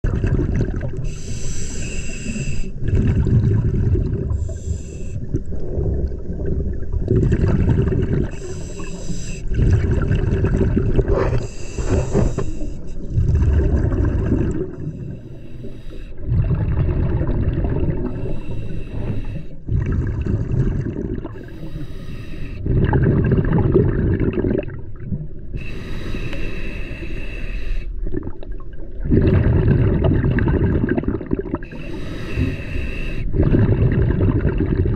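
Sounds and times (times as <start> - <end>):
exhale bubbling underwater: 0.0 - 34.9
regulator inhale hiss: 1.0 - 2.8, 4.3 - 5.2, 8.3 - 9.5, 11.4 - 13.0, 14.9 - 16.2, 18.1 - 19.6, 21.4 - 22.6, 25.6 - 28.0, 31.7 - 33.4.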